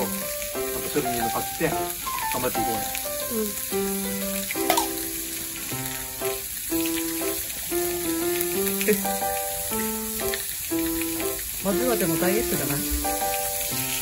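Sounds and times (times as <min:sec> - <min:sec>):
meat sizzling on a grill plate: 0:00.0 - 0:14.0.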